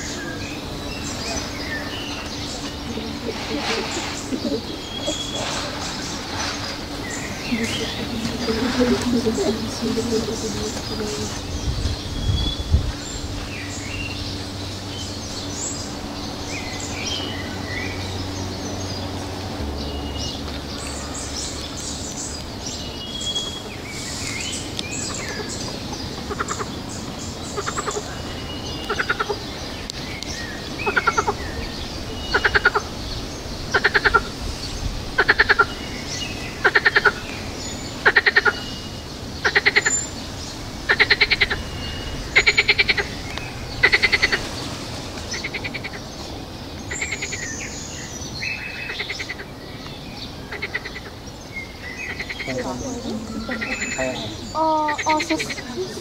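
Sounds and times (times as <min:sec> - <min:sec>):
birds chirping: 0:00.0 - 0:56.0
frogs croaking: 0:00.0 - 0:56.0.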